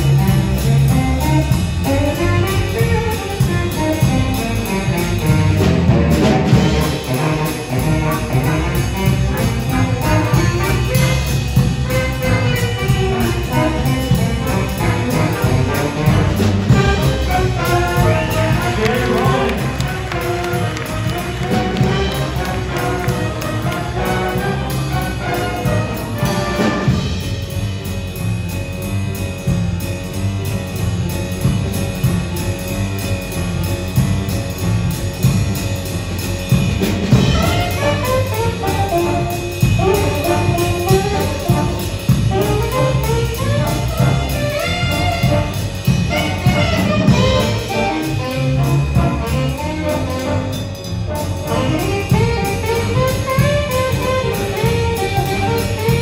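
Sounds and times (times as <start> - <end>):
drum kit: 0.0 - 56.0
jazz band with brass: 0.0 - 56.0
piano: 0.0 - 56.0
upright bass: 0.0 - 56.0
saxophone solo: 6.6 - 27.2, 37.2 - 56.0.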